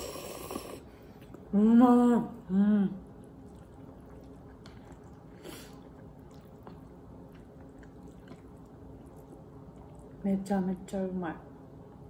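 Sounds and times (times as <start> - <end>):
chewing noodles: 3.0 - 10.2.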